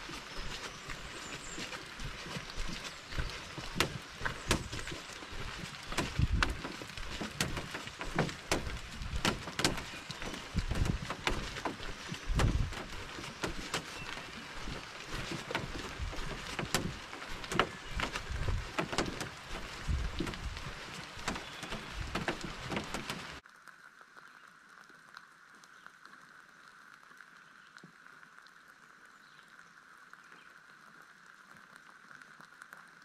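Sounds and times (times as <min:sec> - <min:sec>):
canoe hull ticks and knocks: 0:00.0 - 0:23.4
footsteps on dirt trail: 0:00.0 - 0:23.4.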